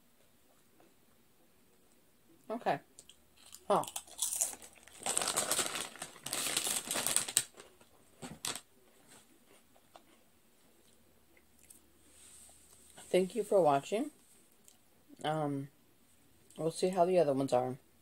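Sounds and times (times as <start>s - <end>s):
chip bag crinkling: 3.4s - 8.7s.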